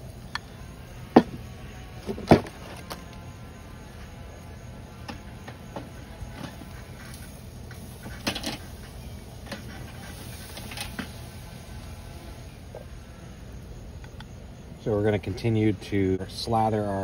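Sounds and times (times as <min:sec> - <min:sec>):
low background noise: 0:00.0 - 0:17.0.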